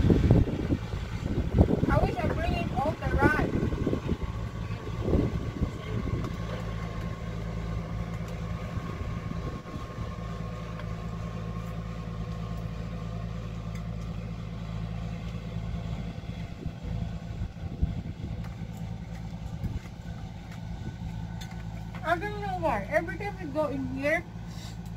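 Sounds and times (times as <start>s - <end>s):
engine idling: 0.0s - 24.9s.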